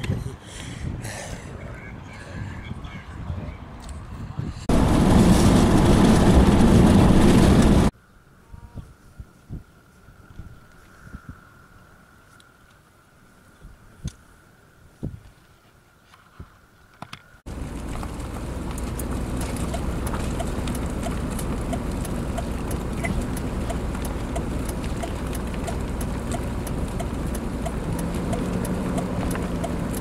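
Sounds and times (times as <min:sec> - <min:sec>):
engine and road rumble: 0:00.0 - 0:08.0, 0:16.6 - 0:30.0
low hum: 0:04.7 - 0:08.8, 0:17.5 - 0:30.0
light regular ticking: 0:17.5 - 0:30.0.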